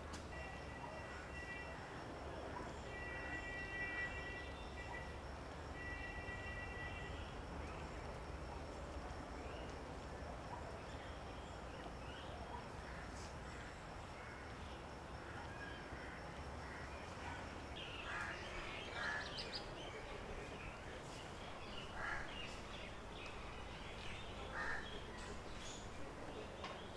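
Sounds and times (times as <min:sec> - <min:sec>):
birds calling: 0:16.7 - 0:26.9.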